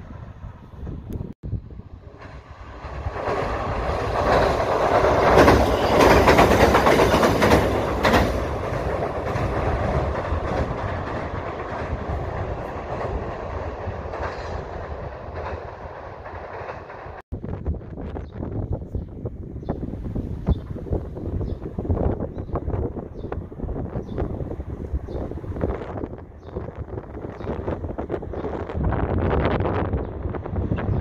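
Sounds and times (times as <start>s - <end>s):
train wheels clattering on bridge: 2.2s - 17.2s.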